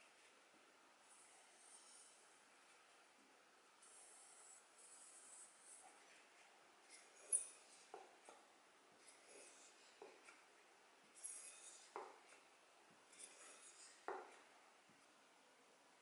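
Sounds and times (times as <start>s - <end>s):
steel tool scraping on strop: 11.2s - 12.0s, 13.1s - 14.1s.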